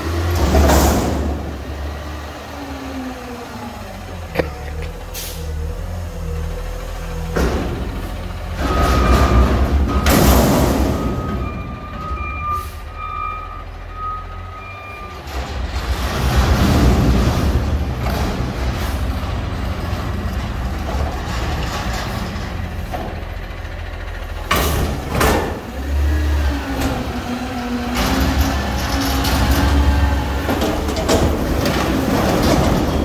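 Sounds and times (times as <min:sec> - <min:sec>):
diesel engine revving: 0:00.0 - 0:33.0
truck backup alarm beeping: 0:08.6 - 0:15.4.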